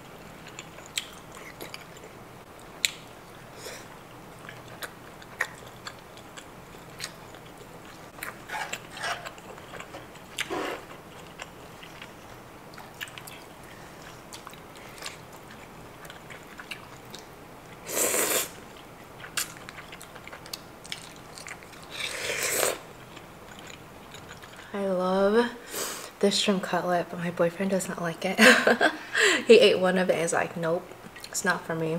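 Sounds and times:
chewing with wet clicks: 0.3 - 3.4, 4.4 - 17.8, 18.7 - 21.9, 22.9 - 24.7, 31.0 - 31.4
loud slurps: 17.9 - 18.6, 22.0 - 22.8.

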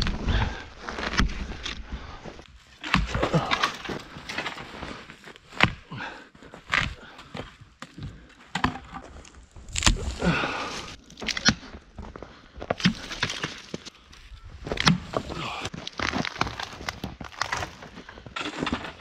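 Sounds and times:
twigs snapping: 9.1 - 11.7, 12.8 - 17.9.

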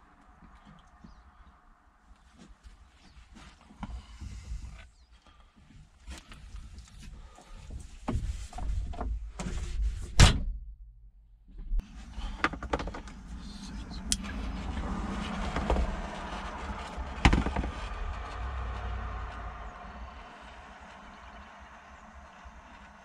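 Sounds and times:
low rumble: 10.6 - 23.0.

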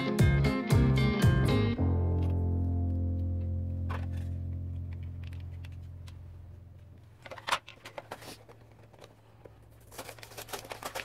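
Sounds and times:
guitar music: 0.0 - 6.4
plastic parts rustling: 3.9 - 6.2, 6.8 - 11.0.

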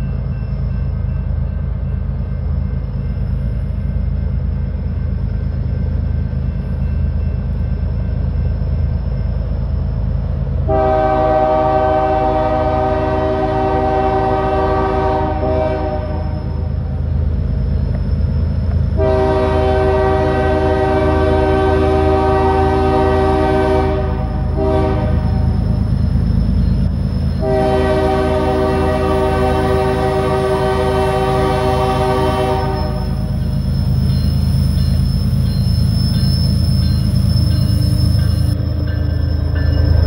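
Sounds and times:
locomotive low rumble: 0.0 - 40.0
locomotive air horn blasts: 10.7 - 16.7, 19.0 - 25.5, 27.4 - 33.3.

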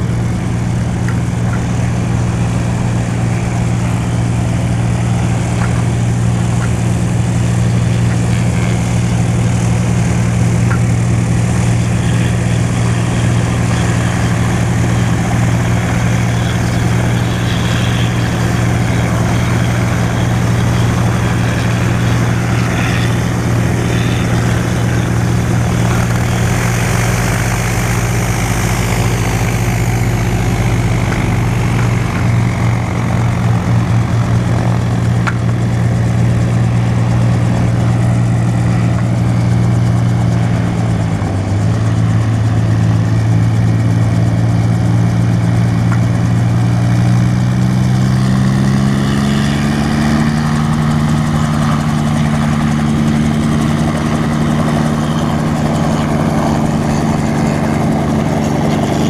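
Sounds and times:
helicopter engines and rotors droning: 0.0 - 59.0.

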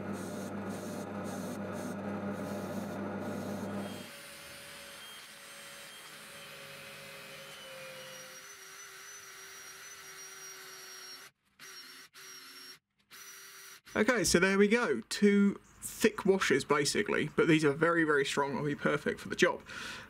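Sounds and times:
drill press motor hum: 0.0 - 5.4.

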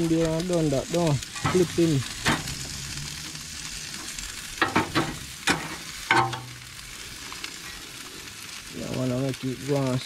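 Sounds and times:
chicken sizzling on a grill: 0.0 - 10.0.

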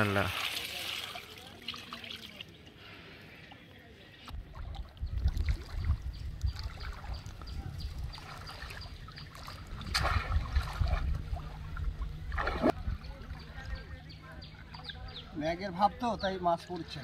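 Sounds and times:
water splashes: 0.0 - 2.8, 4.3 - 14.0
water sloshing and trickling: 0.0 - 3.0, 3.6 - 17.0.

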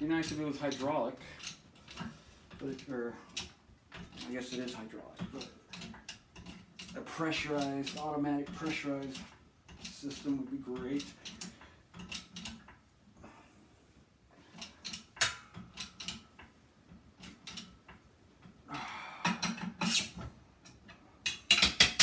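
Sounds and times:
shop press metal clicks and knocks: 20.6 - 22.0.

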